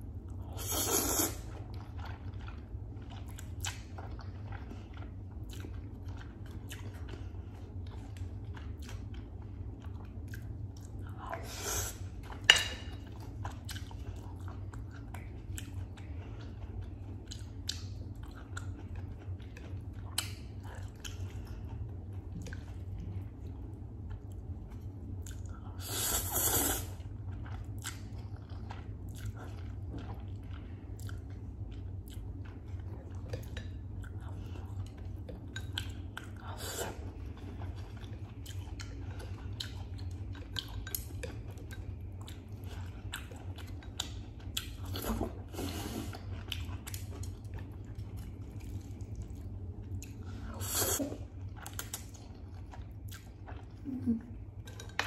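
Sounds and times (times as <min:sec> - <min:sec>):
steady low hum: 0:00.0 - 0:55.0
wet chewing: 0:00.3 - 0:55.0
slurping noodles: 0:00.6 - 0:01.5.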